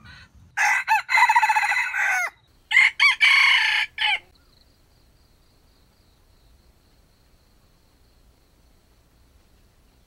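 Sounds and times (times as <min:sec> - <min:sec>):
rooster crowing: 0:00.6 - 0:04.3.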